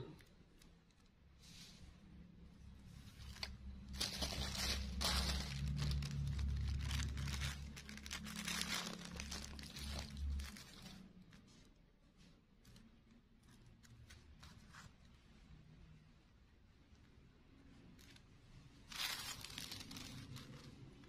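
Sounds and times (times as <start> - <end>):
plastic sheeting and paper crinkling: 2.8 - 15.0, 17.8 - 21.0.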